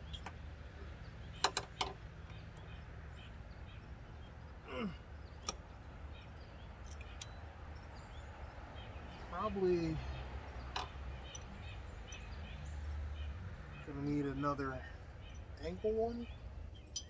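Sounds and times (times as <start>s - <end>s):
person grunting: 4.7s - 5.0s.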